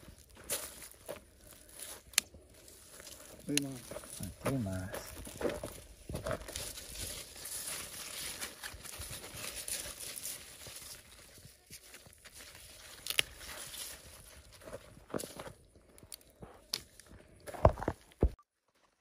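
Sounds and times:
leaves rustling and crackling: 0:00.0 - 0:17.1
small snaps of stems: 0:01.8 - 0:02.3, 0:13.0 - 0:13.3, 0:16.1 - 0:17.0.

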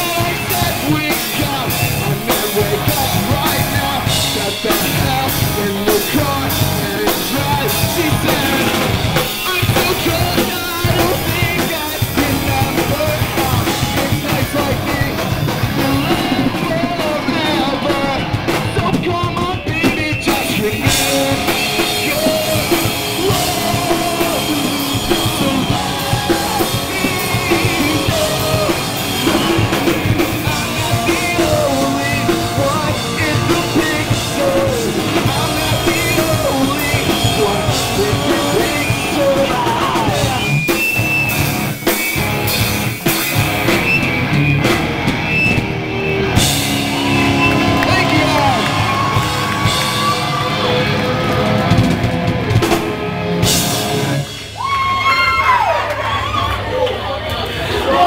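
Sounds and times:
person singing: 0:00.0 - 0:40.7
drum kit: 0:00.0 - 0:55.7
electric guitars: 0:00.0 - 0:58.0.

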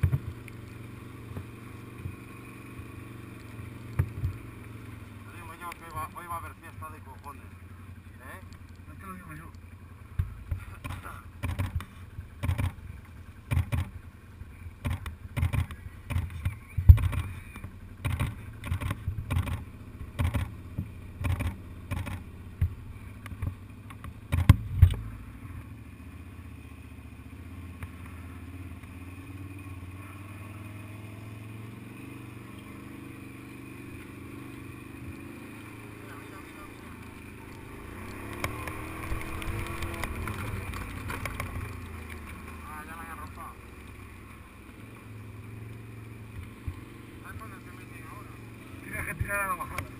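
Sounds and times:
sharp knocks and thumps: 0:00.0 - 0:00.4, 0:10.1 - 0:12.8, 0:13.5 - 0:13.9, 0:14.8 - 0:25.1
low engine drone: 0:00.0 - 0:49.9.

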